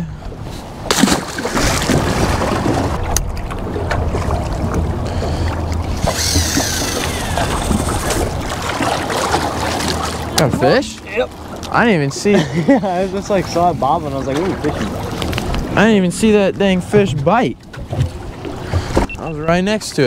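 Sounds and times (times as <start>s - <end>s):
wind buffeting microphone: 1.6s - 10.4s, 13.3s - 19.2s.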